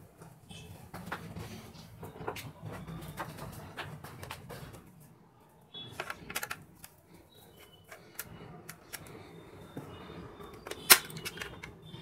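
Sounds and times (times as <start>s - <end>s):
plastic cover clicking and snapping: 5.9s - 7.0s, 10.6s - 11.8s.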